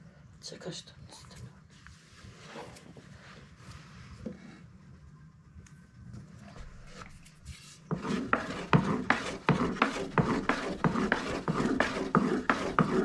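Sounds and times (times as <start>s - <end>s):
rolling pin knocking on wooden board: 7.9s - 13.0s.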